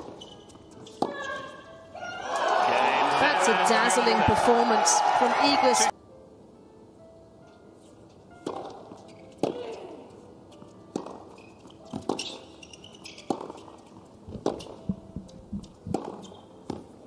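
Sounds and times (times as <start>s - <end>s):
racket hitting tennis ball: 0.0s - 1.5s, 8.4s - 10.0s, 10.9s - 16.9s
tennis ball bouncing: 0.0s - 1.6s, 8.4s - 9.8s, 10.6s - 16.9s
footsteps on hard court: 10.5s - 16.9s.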